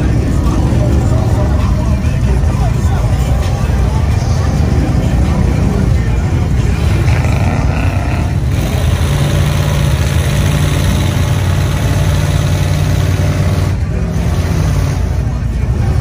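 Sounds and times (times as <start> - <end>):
off-road vehicle engine droning: 0.0 - 16.0.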